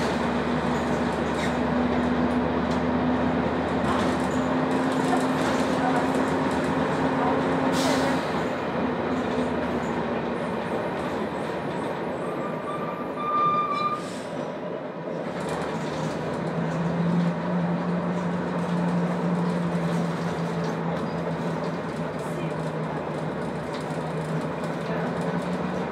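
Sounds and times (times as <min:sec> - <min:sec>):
bus engine drone: 0:00.0 - 0:25.9
road rumble: 0:00.0 - 0:25.9
brief high squeal: 0:12.2 - 0:14.3.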